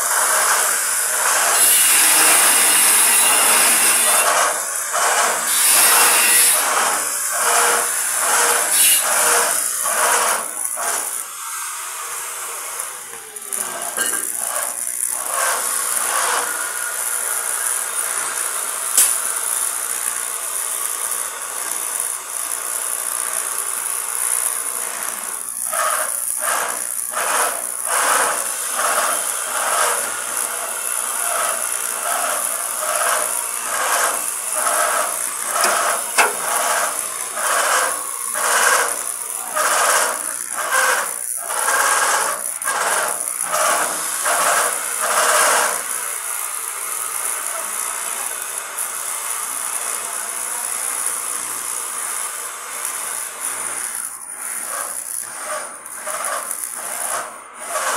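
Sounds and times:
welding arc hissing: 0:00.0 - 0:57.9
welding arc clicks: 0:18.9 - 0:45.8.

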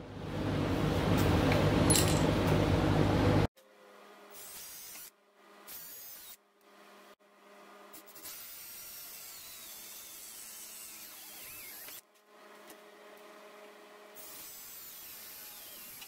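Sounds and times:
cordless drill boring metal: 0:05.7 - 0:06.4, 0:08.2 - 0:12.0, 0:14.2 - 0:16.0.

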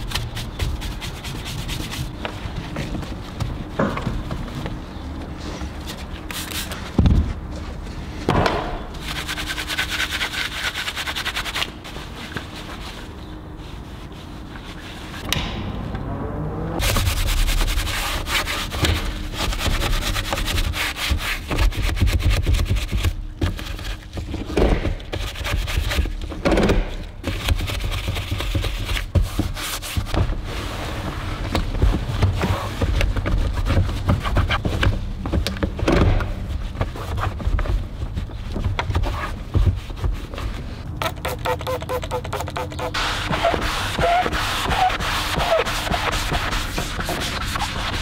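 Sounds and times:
brush scrubbing plastic: 0:16.8 - 0:24.3, 0:36.5 - 0:48.0.

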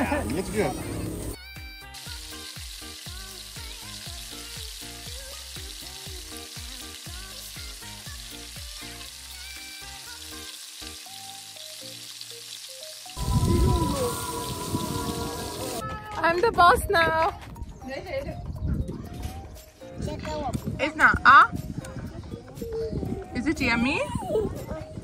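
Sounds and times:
background music with bass line: 0:00.0 - 0:11.0
food sizzling on a grill: 0:00.0 - 0:15.8.

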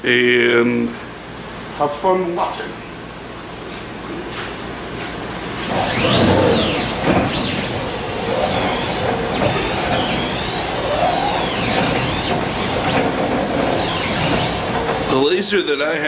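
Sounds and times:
motors whining: 0:05.6 - 0:16.0.

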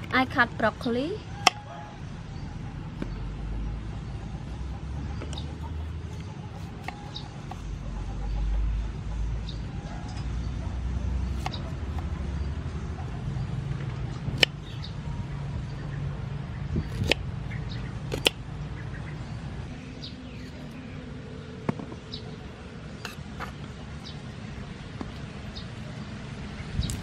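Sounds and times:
small birds chirping: 0:01.2 - 0:27.0
knife cutting broccoli: 0:16.9 - 0:17.2, 0:18.1 - 0:18.4.

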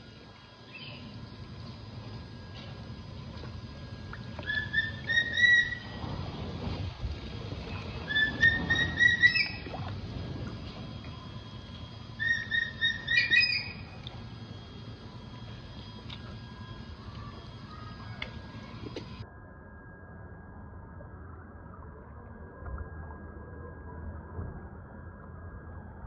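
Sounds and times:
bird whistling call: 0:04.4 - 0:06.0, 0:08.0 - 0:09.7, 0:12.2 - 0:14.0.

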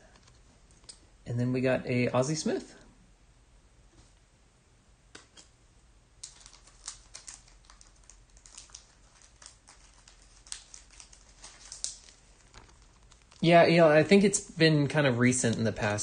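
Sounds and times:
card pack wrapper crinkling: 0:06.2 - 0:13.6.

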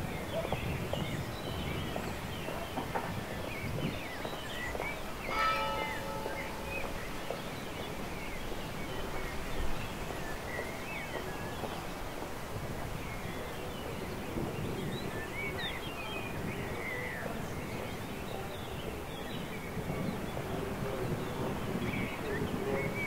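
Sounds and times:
small birds chirping: 0:00.0 - 0:23.0
bell stroke ringing: 0:05.3 - 0:07.2.

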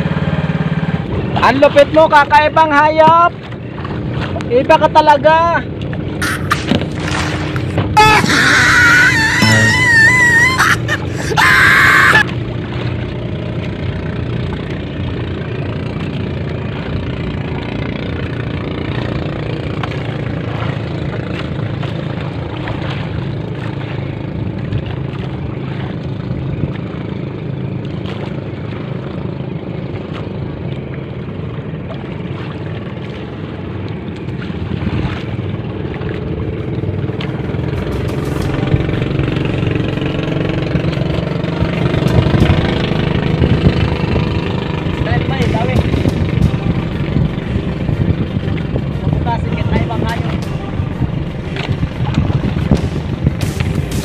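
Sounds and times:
small boat engine idling: 0:00.0 - 0:54.0
loud music: 0:09.0 - 0:11.4, 0:37.8 - 0:39.9, 0:49.9 - 0:54.0.

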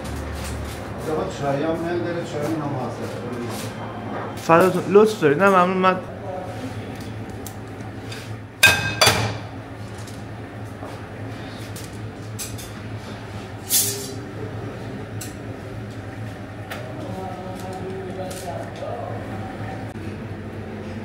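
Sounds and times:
metal skewers clinking: 0:13.6 - 0:14.2.

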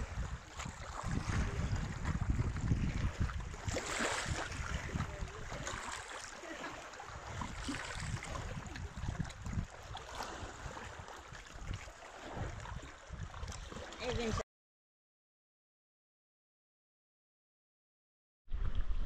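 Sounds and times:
rush of wind: 0:00.0 - 0:05.8, 0:07.1 - 0:14.4
wind gusting on microphone: 0:00.0 - 0:06.1, 0:07.1 - 0:14.4
lake water lapping: 0:00.0 - 0:14.4.

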